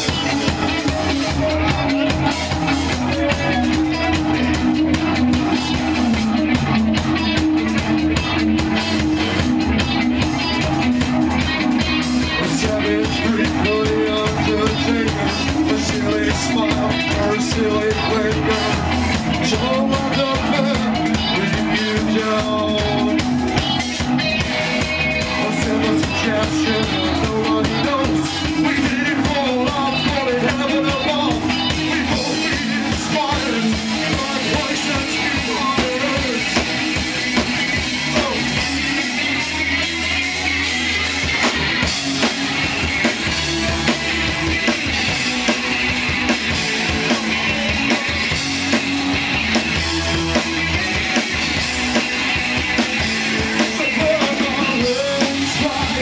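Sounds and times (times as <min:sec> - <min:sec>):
bass guitar: 0:00.0 - 0:56.0
drums: 0:00.0 - 0:56.0
electric guitar: 0:00.0 - 0:56.0
man singing into a microphone: 0:00.1 - 0:04.0, 0:12.3 - 0:23.2, 0:25.3 - 0:36.7, 0:53.4 - 0:56.0.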